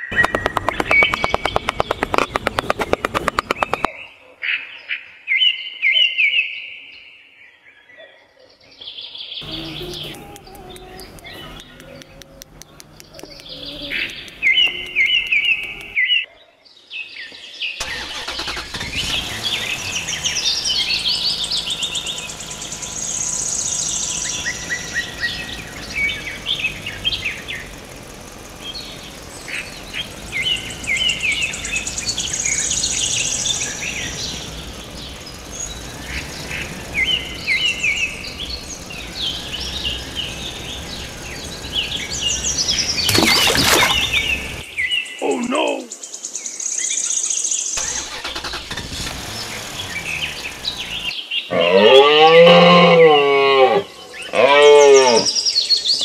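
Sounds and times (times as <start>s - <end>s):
vehicle engine running: 0.0s - 3.9s, 9.4s - 16.0s, 17.8s - 44.9s, 47.8s - 51.2s
birds chirping and singing: 0.0s - 56.0s.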